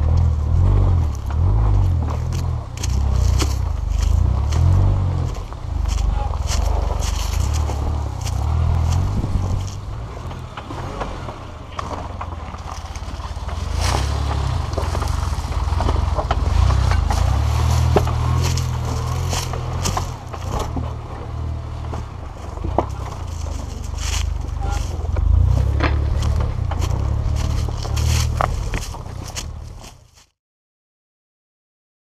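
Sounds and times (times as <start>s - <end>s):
engine low rumble: 0.0s - 30.3s
tyres crunching over stones: 0.0s - 30.3s.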